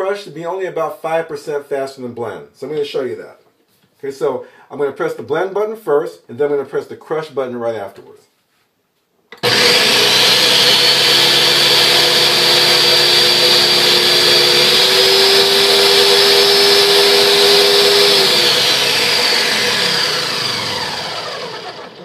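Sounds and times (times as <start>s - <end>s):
blender motor whining: 9.4s - 22.0s.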